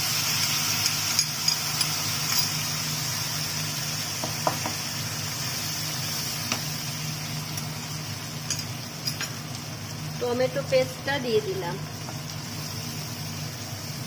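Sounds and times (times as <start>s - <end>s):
spice paste sizzling in oil: 0.0s - 14.0s
spatula tapping wok: 4.2s - 4.8s.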